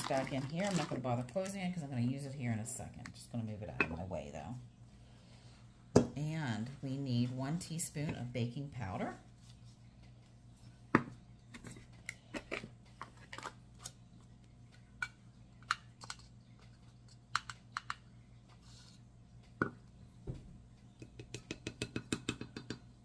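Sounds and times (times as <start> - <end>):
plastic spoon tapping can: 17.3 - 18.0, 21.0 - 22.8.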